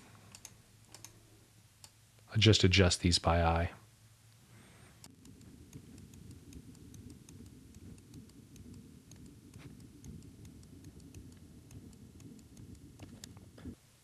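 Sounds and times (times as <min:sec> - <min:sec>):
low steady hum: 0:00.0 - 0:14.0
computer mouse clicks: 0:00.3 - 0:01.2, 0:05.0 - 0:13.5.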